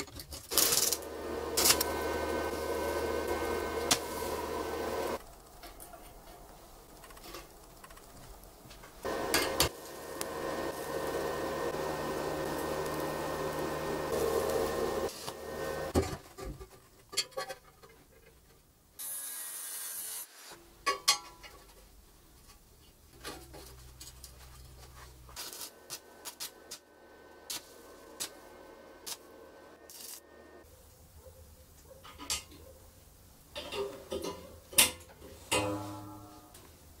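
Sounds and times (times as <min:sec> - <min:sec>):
welding crackles: 0:00.0 - 0:16.0, 0:23.7 - 0:30.6
loud machine noise with buzzing hum: 0:00.6 - 0:05.2, 0:09.1 - 0:16.0.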